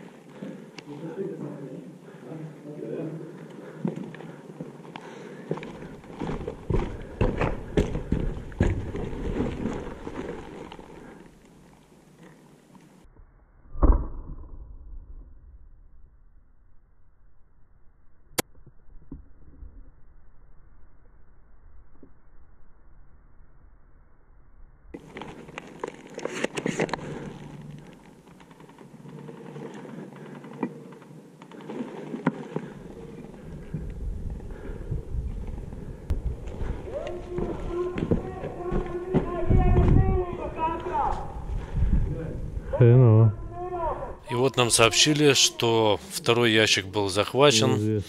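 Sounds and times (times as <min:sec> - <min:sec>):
sharp clicks and crackles: 0:25.0 - 0:32.8
rustling movement: 0:25.0 - 0:34.7.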